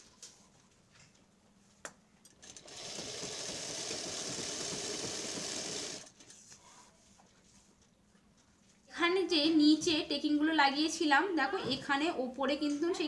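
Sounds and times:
sewing machine running: 2.4 - 6.1.

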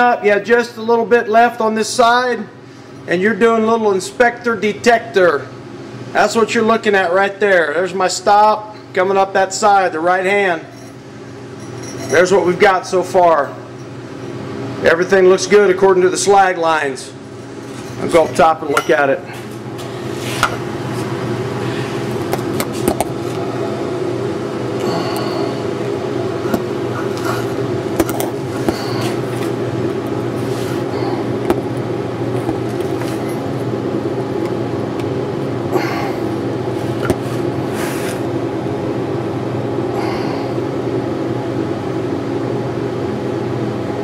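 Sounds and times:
welding arc buzzing and crackling: 17.2 - 38.8.

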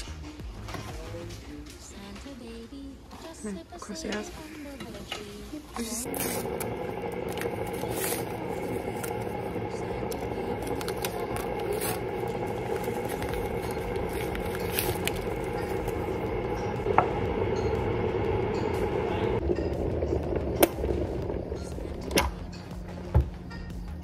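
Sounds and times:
electric kettle heating water: 6.0 - 23.4.

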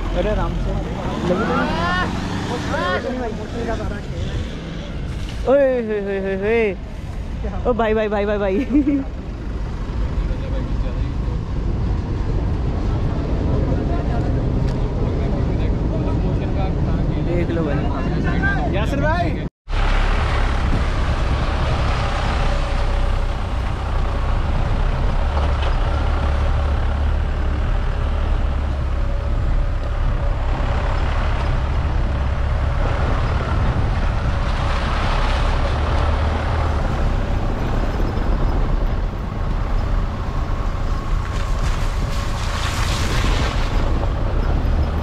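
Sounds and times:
off-road vehicle engine running: 19.7 - 45.0.

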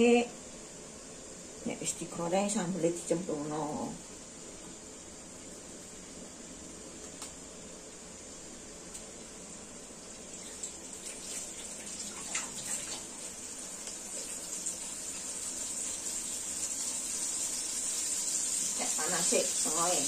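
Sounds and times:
oil hissing in a wok: 10.0 - 20.0
faint oil crackles: 10.1 - 20.0.

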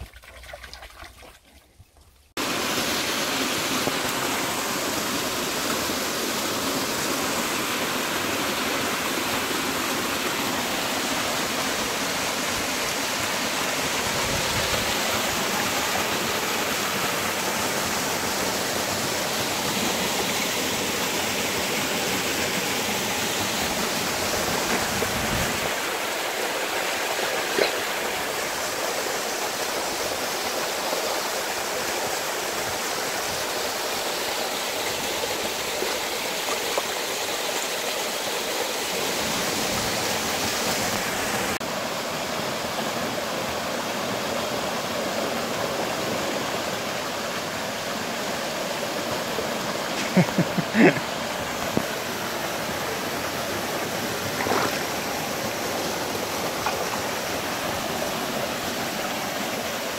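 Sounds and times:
waterfall pouring into pool: 2.4 - 59.9.

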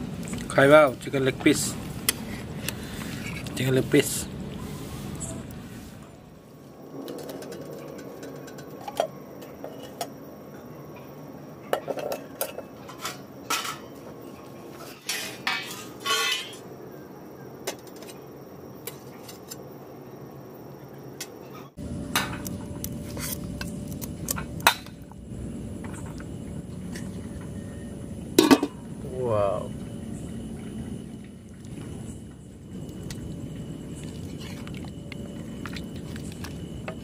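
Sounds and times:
steel dishes clinking and scraping: 14.8 - 16.7.

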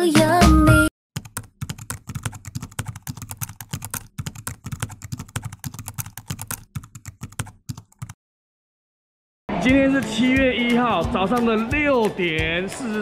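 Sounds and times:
rapid even clicking: 1.2 - 8.2.

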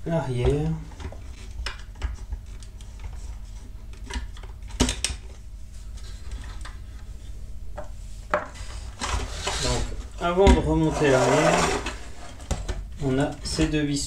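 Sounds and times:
steady low hum: 0.0 - 14.0
plastic parts clicking and knocking: 3.9 - 5.2.

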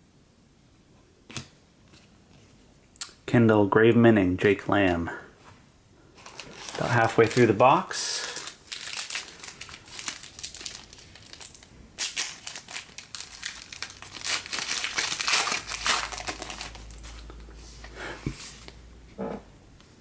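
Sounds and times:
foil wrapper crinkling and tearing: 6.2 - 17.3.

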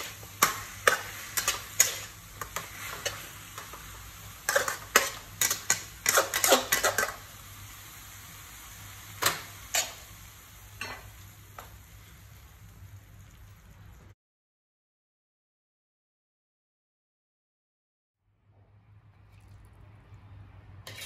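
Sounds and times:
faint sizzle: 0.0 - 14.2.

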